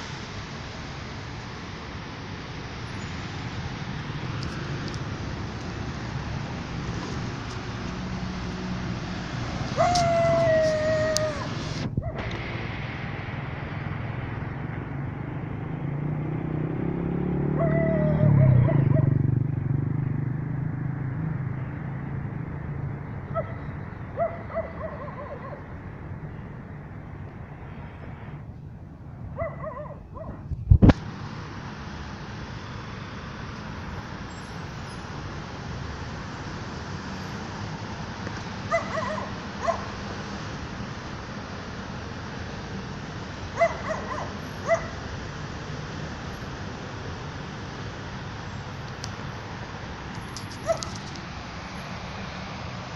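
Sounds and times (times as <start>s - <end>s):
passing road traffic rumble: 0.0s - 52.9s
dog making high-pitched calls: 9.8s - 12.2s, 38.7s - 39.9s.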